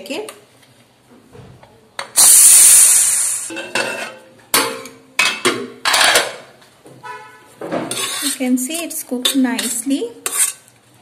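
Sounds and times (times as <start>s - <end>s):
steam hissing from pressure cooker: 2.2s - 3.6s.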